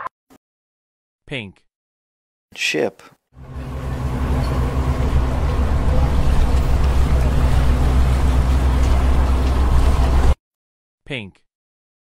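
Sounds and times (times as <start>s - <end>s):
ship engine rumble: 3.4s - 10.4s.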